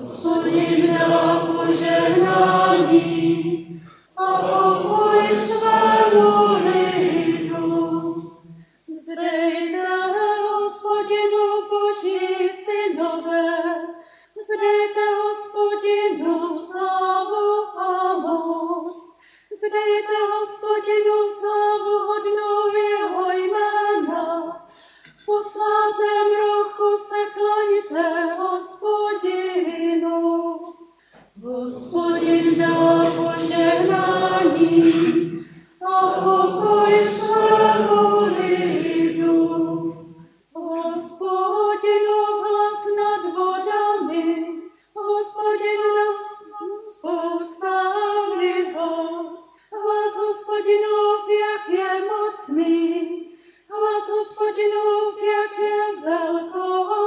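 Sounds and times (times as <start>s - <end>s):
congregation singing: 0.0s - 8.6s, 31.4s - 42.2s.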